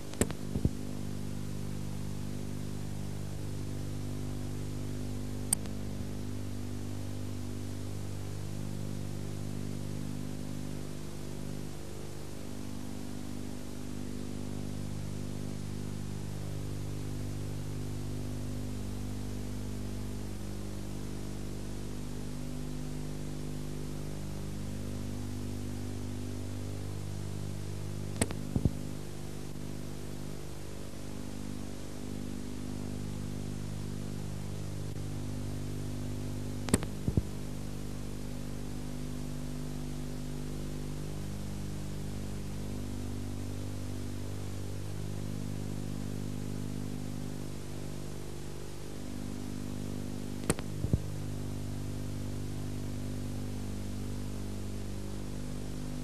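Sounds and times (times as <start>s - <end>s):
electrical hum with hiss: 0.0s - 56.0s
sharp clicks: 0.1s - 0.8s, 5.5s - 5.8s, 28.2s - 28.8s, 36.6s - 37.3s, 50.4s - 51.1s.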